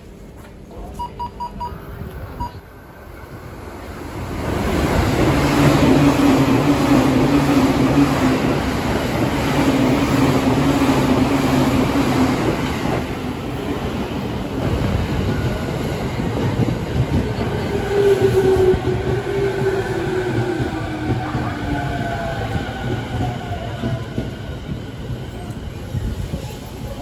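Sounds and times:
short high beeps: 1.0s - 2.6s.

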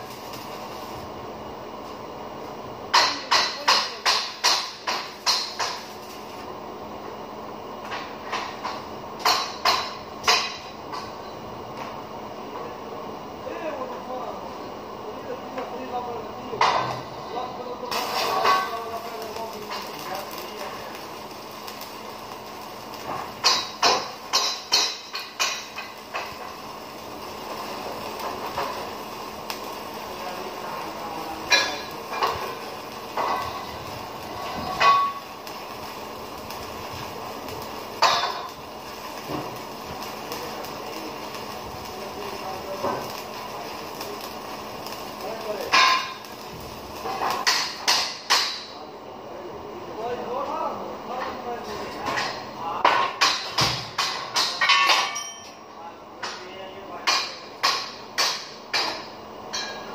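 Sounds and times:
arc welding crackle: 0.0s - 59.9s
sharp knocks on metal: 52.9s - 55.2s.

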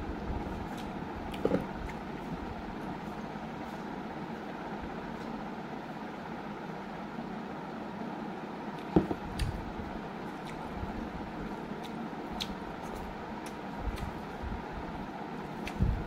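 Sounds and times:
steady background hiss: 0.0s - 16.0s
soft chewing: 0.4s - 3.9s, 10.2s - 14.4s.

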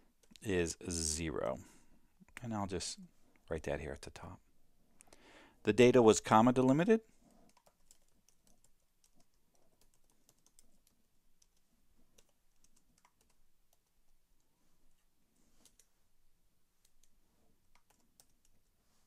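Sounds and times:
typing on a keyboard: 7.4s - 14.2s, 16.8s - 18.7s.

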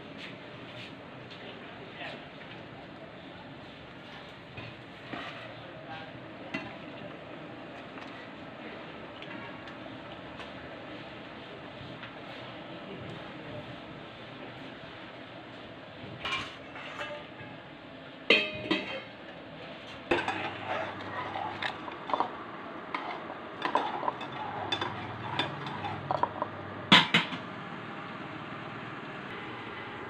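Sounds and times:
metal kitchenware clinking: 18.3s - 19.2s, 22.9s - 27.4s.

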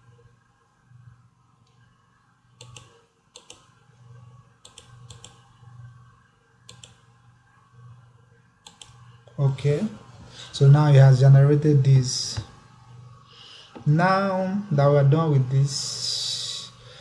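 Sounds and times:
computer mouse clicking: 2.6s - 3.8s, 4.6s - 5.6s, 6.6s - 7.1s, 8.6s - 9.2s.

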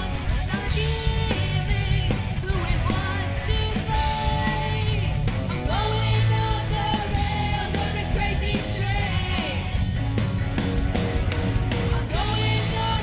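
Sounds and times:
live hard rock band: 0.0s - 13.0s.

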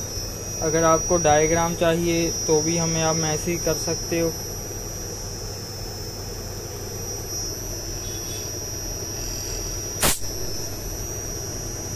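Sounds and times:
compressor hum and whine: 0.0s - 11.9s
sharp knock: 10.0s - 10.3s.

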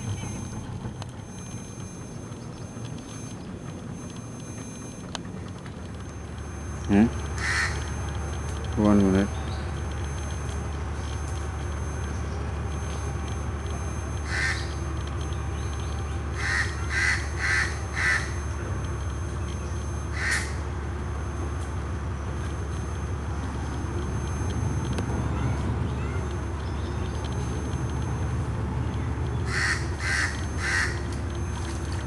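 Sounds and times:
harsh bird calls: 29.4s - 31.0s.

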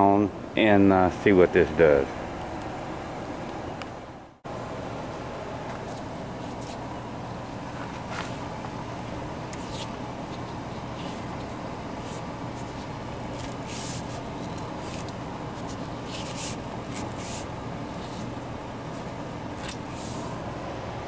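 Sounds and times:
scraping rustles of steering column: 9.5s - 18.3s, 18.9s - 20.4s.

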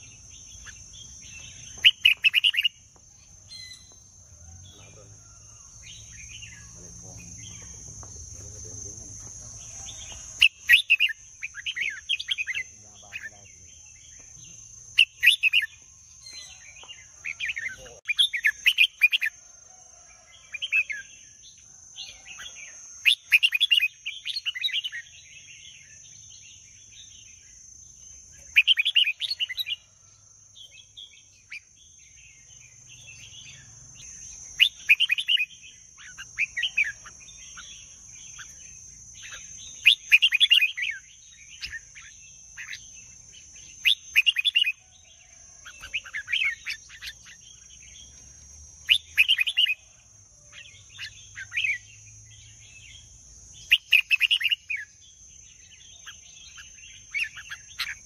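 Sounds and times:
bird singing warbled phrases: 0.0s - 19.5s, 20.2s - 58.0s.

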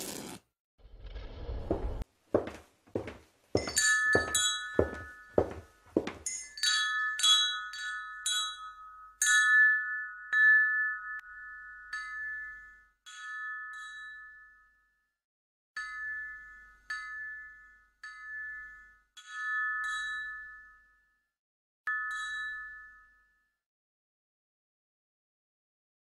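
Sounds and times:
bell-like chime tones: 3.6s - 5.6s, 21.9s - 23.6s.

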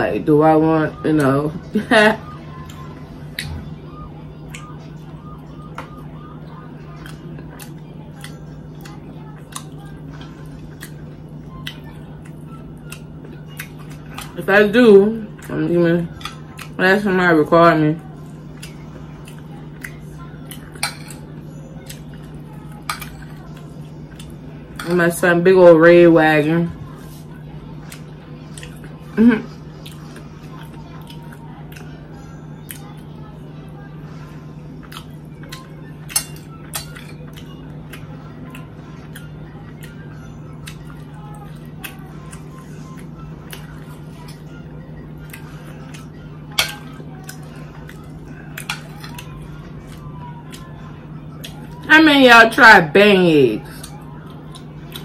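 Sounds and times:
steady low hum: 0.0s - 55.0s
cutlery clinking on a plate: 20.7s - 21.3s, 22.8s - 23.3s, 36.0s - 37.1s, 46.5s - 46.9s.

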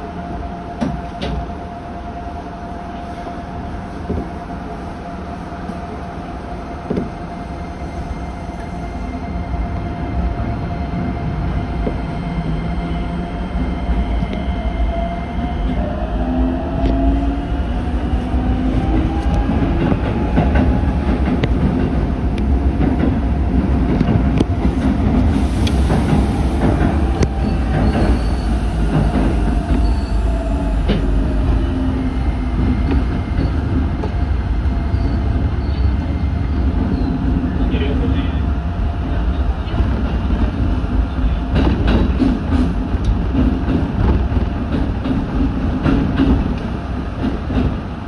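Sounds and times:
train rumble: 0.0s - 48.0s
train wheels clacking over rail joints: 41.5s - 47.8s.

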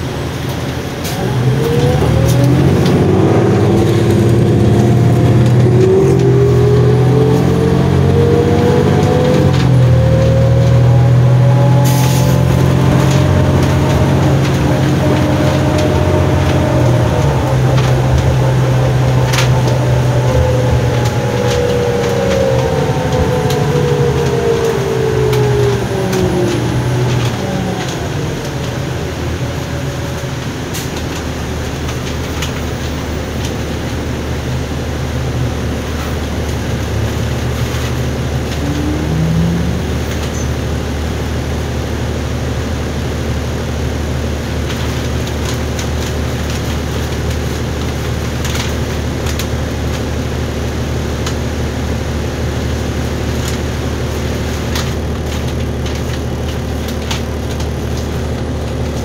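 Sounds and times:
bus engine drone: 0.0s - 59.0s
whine falling in pitch: 1.6s - 28.2s, 38.1s - 40.9s.

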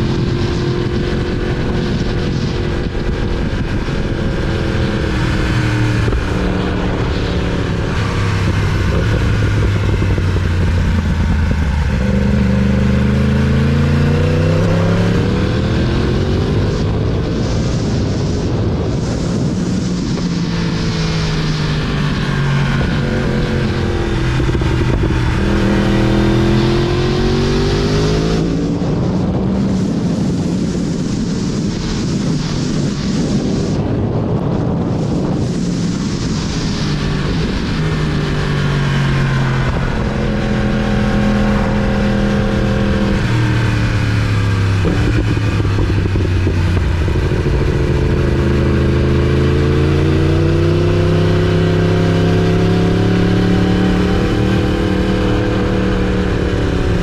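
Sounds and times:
motorcycle engine at road speed: 0.0s - 57.0s
wind rush: 0.0s - 57.0s.

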